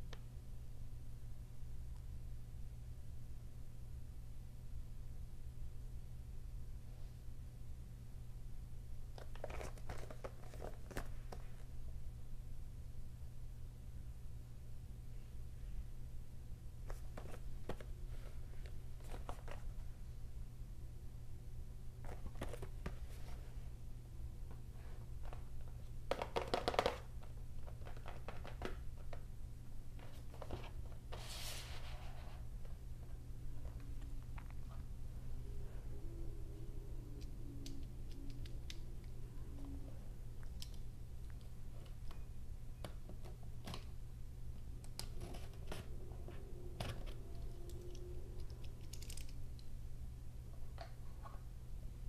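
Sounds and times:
steady low hum: 0:00.0 - 0:52.0
cardboard rubbing hiss: 0:30.1 - 0:32.7.

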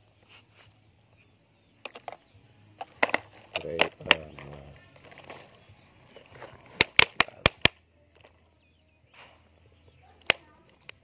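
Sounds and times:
plastic toy clicks and knocks: 0:01.8 - 0:05.4, 0:06.2 - 0:08.4, 0:10.2 - 0:11.0.

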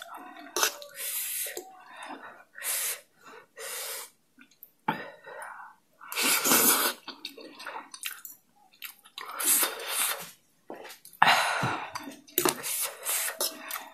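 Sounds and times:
wet smacking and chewing: 0:07.0 - 0:11.2.

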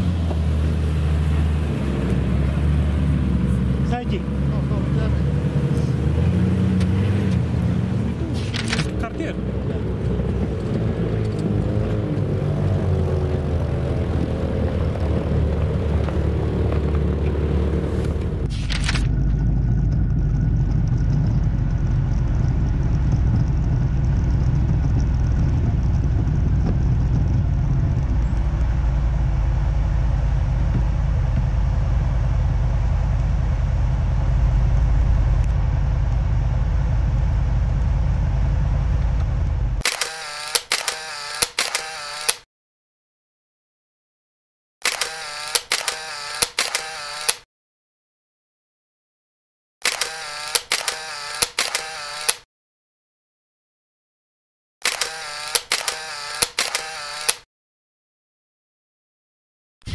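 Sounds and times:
off-road vehicle engine rumble: 0:00.0 - 0:39.9
sharp clicks: 0:08.3 - 0:09.2, 0:18.4 - 0:19.4, 0:39.8 - 0:42.4, 0:44.8 - 0:47.4, 0:49.8 - 0:52.4, 0:54.8 - 0:57.5.

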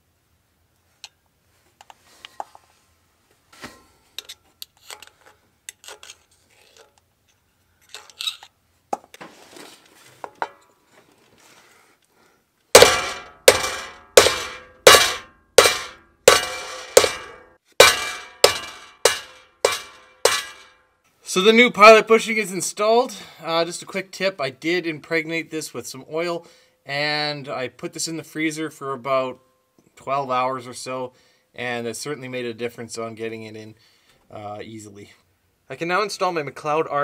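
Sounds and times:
hammer striking metal driver: 0:12.8 - 0:20.7.

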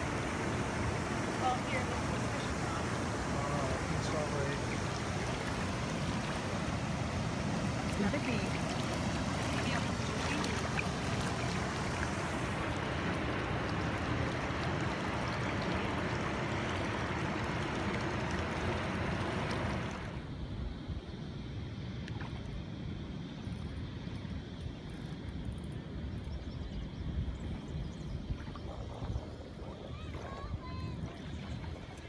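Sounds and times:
shallow river water rushing: 0:00.0 - 0:20.4, 0:27.4 - 0:32.0
dull outdoor ambience: 0:00.0 - 0:32.0.

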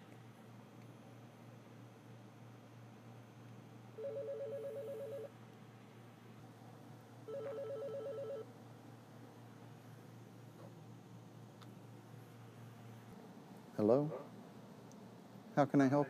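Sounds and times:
cordless phone ringing: 0:04.0 - 0:05.3, 0:07.3 - 0:08.5.

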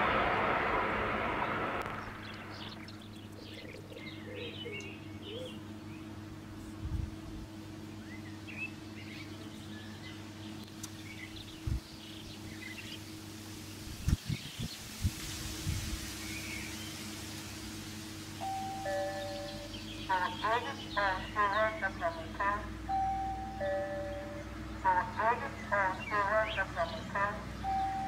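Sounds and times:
passing train: 0:00.0 - 0:03.8, 0:17.8 - 0:28.0
steady low hum: 0:00.0 - 0:28.0
small birds chirping: 0:01.8 - 0:15.0, 0:15.7 - 0:17.3, 0:18.4 - 0:28.0.

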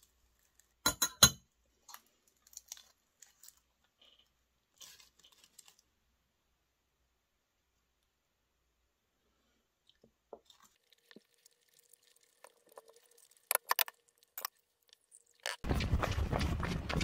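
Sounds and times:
metal spoon clinking in bowl: 0:00.9 - 0:01.4.

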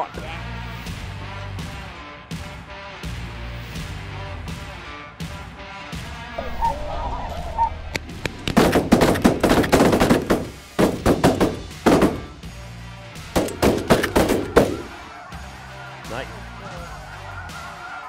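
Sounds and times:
geese calling: 0:06.4 - 0:07.8, 0:13.7 - 0:18.0.

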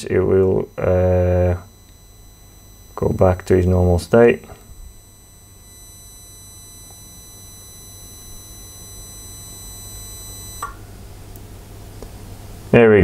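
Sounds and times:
high-pitched electrical whine: 0:00.0 - 0:13.0
low electrical hum: 0:00.0 - 0:13.0
small click: 0:10.6 - 0:12.1.

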